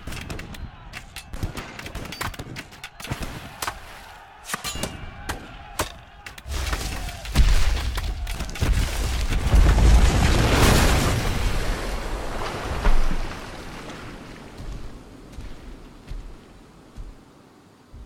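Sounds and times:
cannon fire shots and thuds: 6.5s - 11.6s
deep heavy stone rumble: 7.5s - 15.6s.

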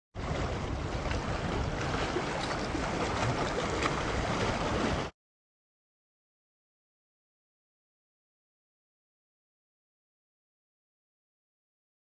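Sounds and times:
water splashing over rocks: 0.2s - 5.1s.

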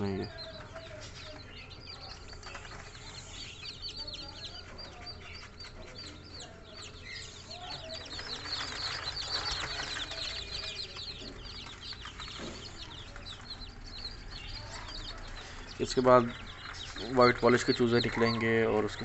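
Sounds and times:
chicks peeping: 0.0s - 19.0s.

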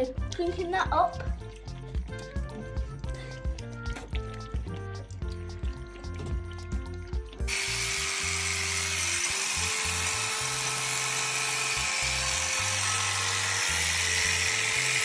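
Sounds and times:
background music: 0.0s - 15.0s
electric shears hissing: 7.5s - 15.0s.

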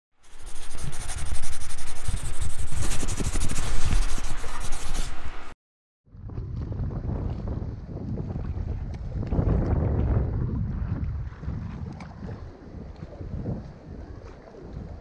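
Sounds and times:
rough scraping rasping noise: 0.2s - 5.5s
wind noise on microphone: 0.2s - 5.5s, 6.1s - 15.0s.

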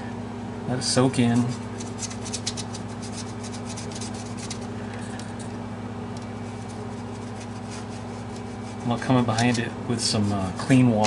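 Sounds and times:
steady low hum: 0.0s - 11.0s
small brush scratching wood: 1.3s - 4.7s, 6.4s - 10.7s.

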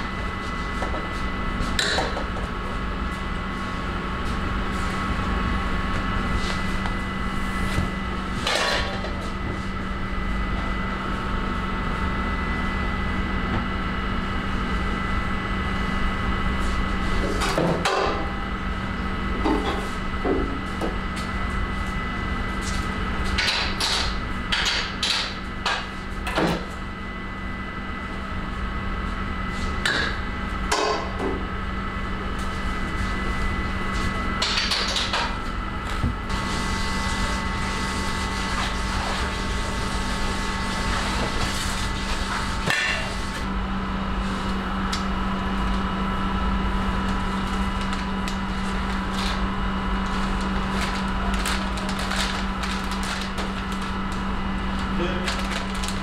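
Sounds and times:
bakery machinery hum: 0.0s - 56.0s.

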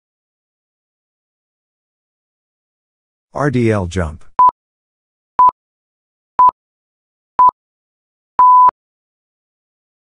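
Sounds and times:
electronic timer beeps: 8.4s - 8.7s.

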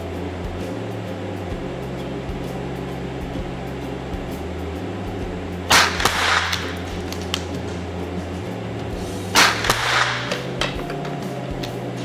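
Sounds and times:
rifle shots echoing indoors: 5.7s - 6.7s, 9.4s - 10.5s.

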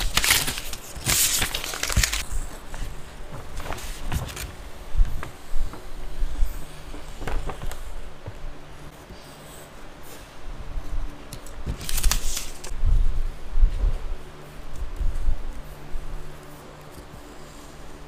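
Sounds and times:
craft knife slicing paper: 0.0s - 2.5s, 11.8s - 12.7s
paper rustling and scraping: 0.0s - 9.7s, 11.3s - 12.7s
soft knocks of paper handling: 0.2s - 8.9s.

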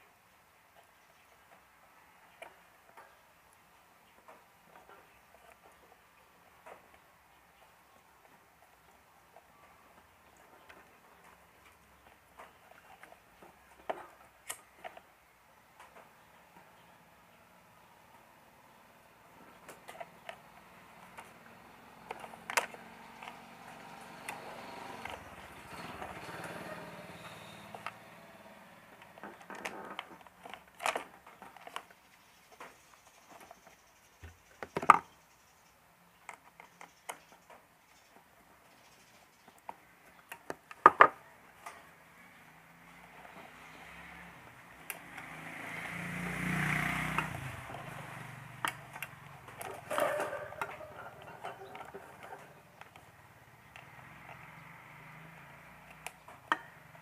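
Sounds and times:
plastic housing clicks and rattles: 22.0s - 26.6s, 28.9s - 32.0s, 47.2s - 54.6s
plastic clicks and knocks: 34.2s - 35.1s, 39.6s - 41.8s.

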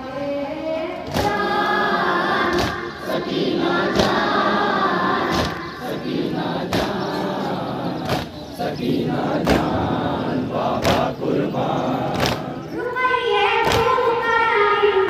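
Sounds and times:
boy singing into a microphone: 0.0s - 6.0s, 12.5s - 15.0s
men singing chorus: 1.0s - 12.8s
sharp rhythmic thuds: 1.0s - 12.8s, 13.6s - 14.1s.

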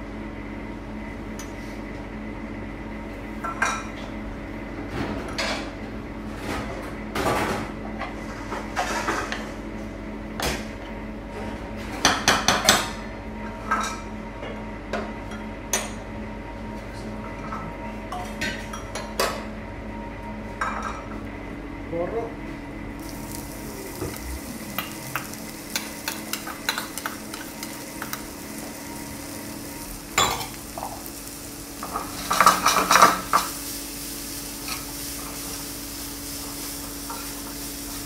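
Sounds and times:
steady hum: 13.0s - 38.0s.

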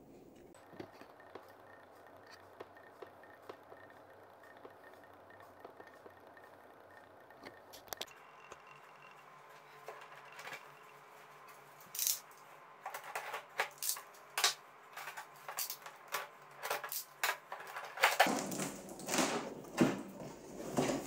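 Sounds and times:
cardboard rustling: 17.5s - 21.0s.

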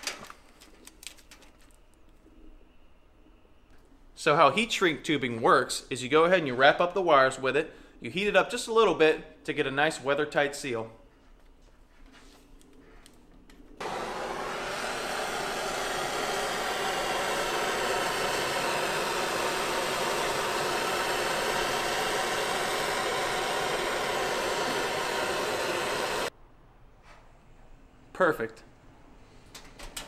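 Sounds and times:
gas torch flame hissing: 13.8s - 26.3s.

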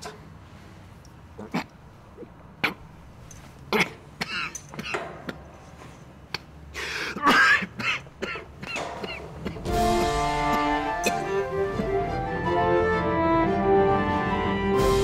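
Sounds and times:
man coughing: 6.9s - 11.6s.

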